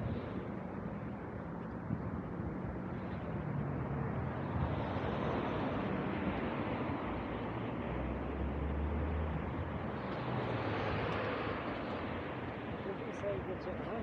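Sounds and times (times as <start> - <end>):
background traffic: 0.0 - 14.0.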